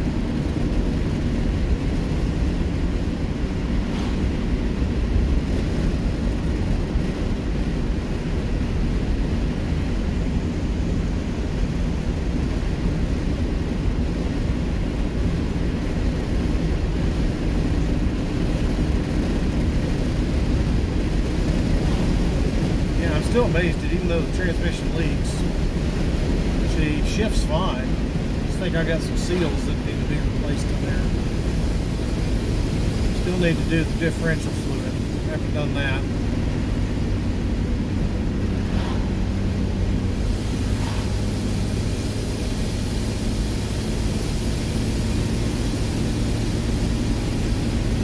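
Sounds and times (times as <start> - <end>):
car engine running: 0.0 - 48.0
road and wind noise: 0.0 - 48.0.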